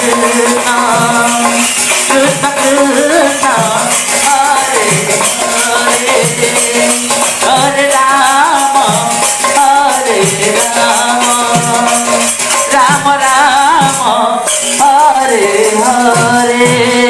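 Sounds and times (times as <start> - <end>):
jingling rattling percussion: 0.0 - 17.0
wavering sung melody: 0.0 - 17.0.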